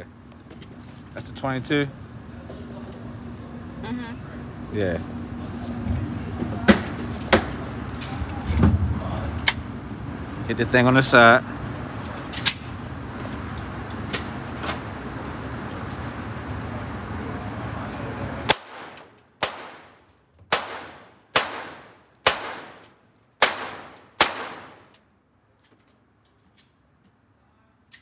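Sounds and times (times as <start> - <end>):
handgun shots echoing indoors: 18.5 - 25.1.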